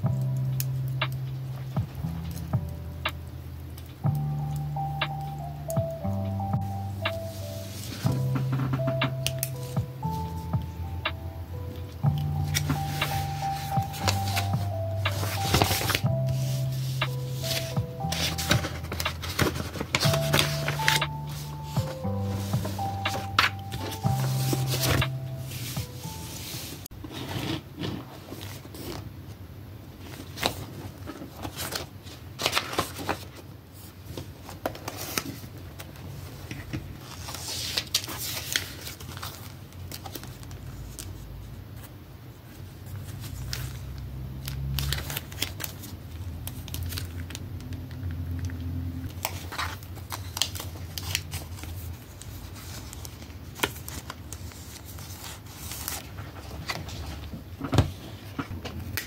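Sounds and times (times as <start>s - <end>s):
plastic packaging crinkling: 12.4s - 26.2s, 43.0s - 48.2s, 49.0s - 57.3s.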